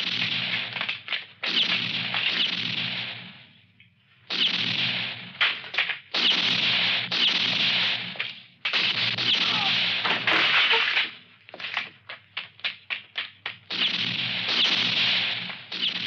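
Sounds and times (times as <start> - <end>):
rapid sharp gunshot cracks: 0.0 - 3.5, 4.3 - 11.8, 12.7 - 16.0
pistol shots echoing: 4.3 - 11.1, 13.7 - 16.0.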